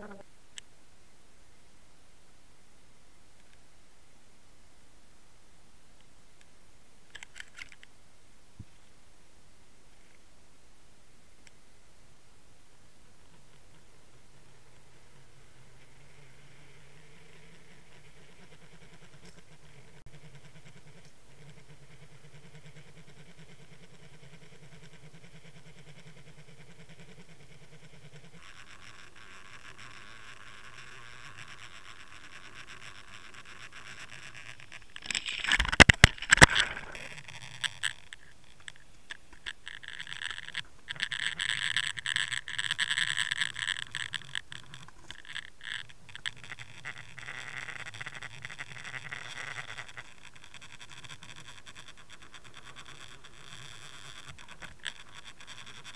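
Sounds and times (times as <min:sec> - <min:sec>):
low underwater hum: 0:00.0 - 0:55.9
scraping and rubbing underwater: 0:13.3 - 0:55.9.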